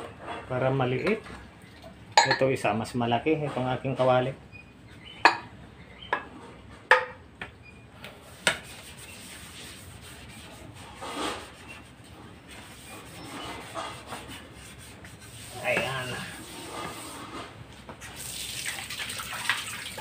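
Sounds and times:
scrubbing cookware: 8.2s - 20.0s.

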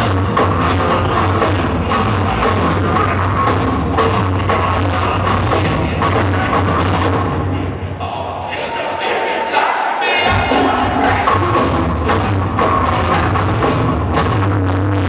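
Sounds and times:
rock band playing loudly: 0.0s - 7.8s, 10.1s - 15.0s
drum hits: 10.2s - 13.7s.

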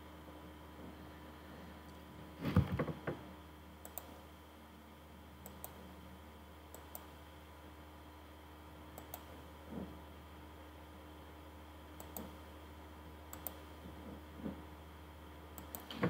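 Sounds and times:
computer mouse clicking: 3.8s - 4.2s, 5.4s - 5.8s, 9.0s - 9.3s, 12.0s - 12.4s, 13.3s - 13.6s, 15.6s - 15.9s.

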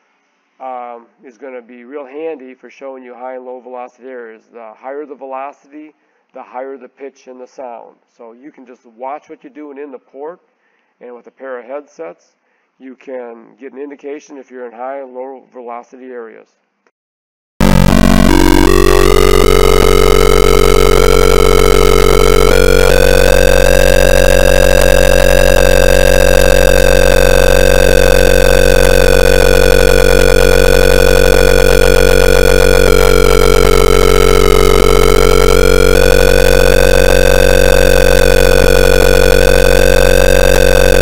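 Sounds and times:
buzzy electronic tone changing pitch: 17.6s - 41.0s.

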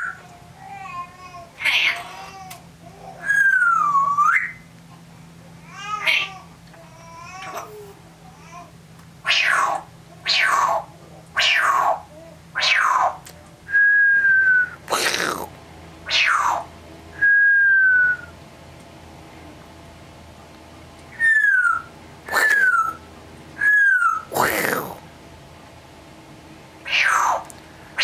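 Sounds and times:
parrot harsh squawk: 1.6s - 2.2s, 6.0s - 6.4s, 9.2s - 12.0s, 12.6s - 13.2s, 14.9s - 15.5s, 16.1s - 16.7s, 22.3s - 23.0s, 23.6s - 25.0s, 26.8s - 27.5s
parrot whistling: 3.2s - 4.6s, 21.1s - 23.0s, 23.6s - 25.0s.

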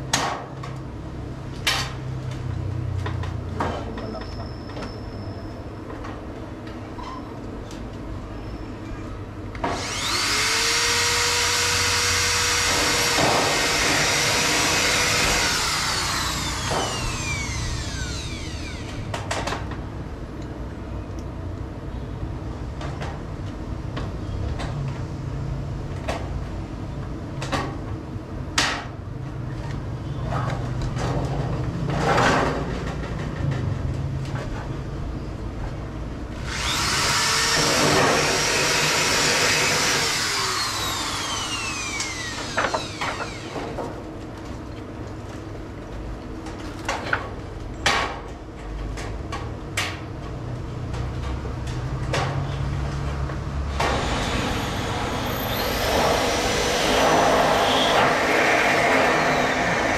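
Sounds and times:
power tool running: 9.6s - 19.1s, 36.4s - 43.8s, 53.7s - 59.9s.

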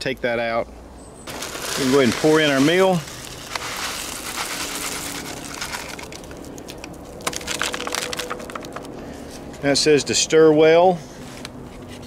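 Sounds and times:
rice and beans pouring: 1.3s - 6.5s, 7.2s - 8.9s
grains landing ticks: 1.3s - 9.0s
pouch shaken clicks: 3.5s - 8.9s.

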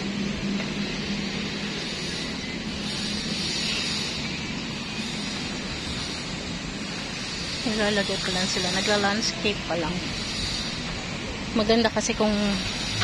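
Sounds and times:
continuous hiss: 0.0s - 13.0s.

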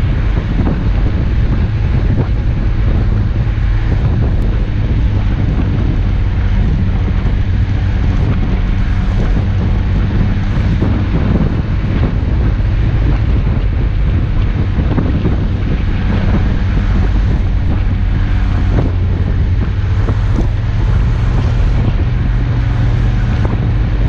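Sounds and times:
car engine running: 0.0s - 24.0s
wind noise on microphone: 0.0s - 24.0s.

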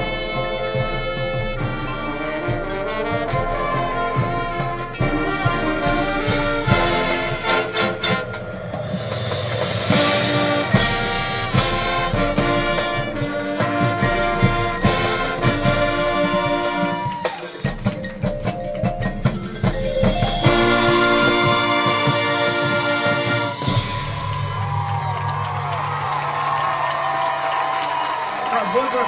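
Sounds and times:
brass chords: 0.0s - 18.5s, 19.2s - 28.1s
drums: 0.0s - 29.0s
marimbas: 13.2s - 25.6s.

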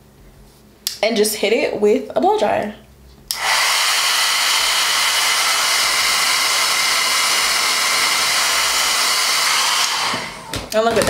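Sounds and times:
hair dryer running: 3.3s - 10.8s.

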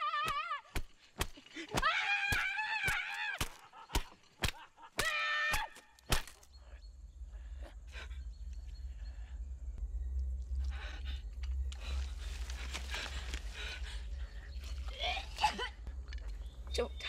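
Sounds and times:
low rumble: 6.7s - 17.0s
heavy breathing: 10.5s - 14.8s.

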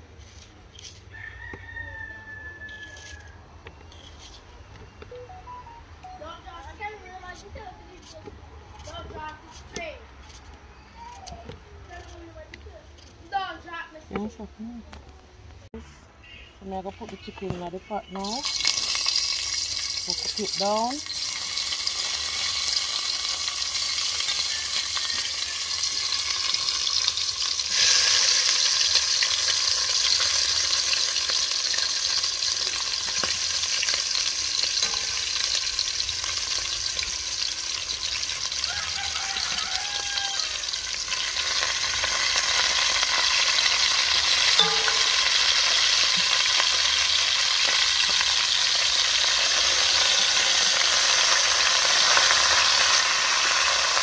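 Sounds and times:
chicken sizzling in hot oil: 18.2s - 54.0s.

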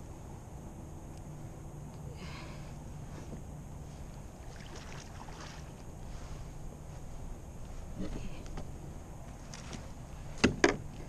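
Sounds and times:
fish splashing at water surface: 4.5s - 5.8s.

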